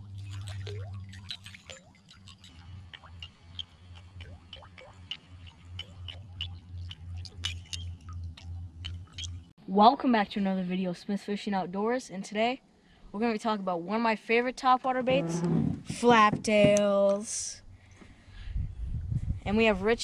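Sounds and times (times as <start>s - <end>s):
lure ticking and clinking on water: 0.0s - 9.5s
low pulsing hum: 0.0s - 9.6s, 17.6s - 20.0s.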